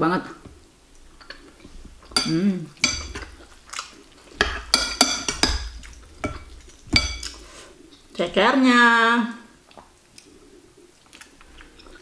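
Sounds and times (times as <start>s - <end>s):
cutlery clinking on ceramic bowl: 2.0s - 3.5s, 4.4s - 7.4s.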